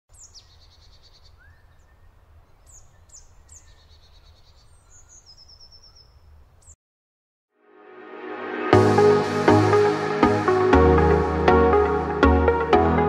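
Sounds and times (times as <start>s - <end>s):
small bird calls and trills: 0.1s - 6.8s.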